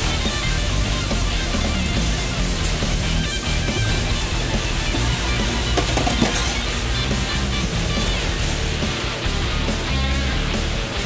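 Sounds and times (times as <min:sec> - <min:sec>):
rock music with electric guitar: 0:00.0 - 0:11.0.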